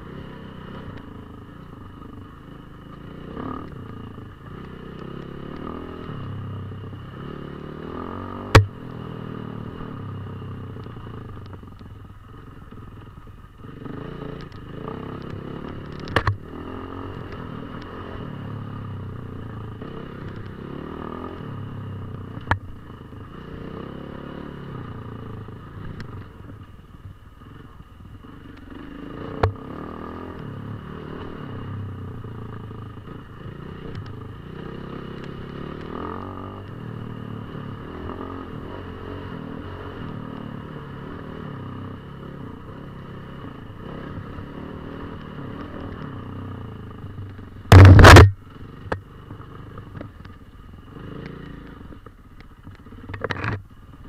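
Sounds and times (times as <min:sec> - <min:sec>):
motorcycle engine revving: 0:00.0 - 0:26.7, 0:27.5 - 0:52.1
sharp knocks: 0:47.7 - 0:48.4.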